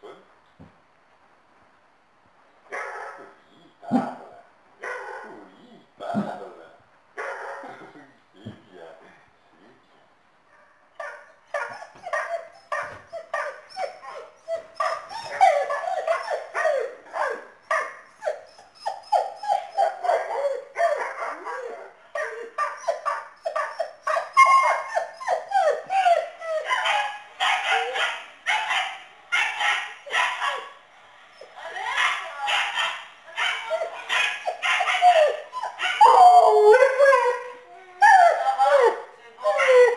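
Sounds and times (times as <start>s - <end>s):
dog yipping and barking: 11.0s - 30.7s, 31.4s - 37.4s.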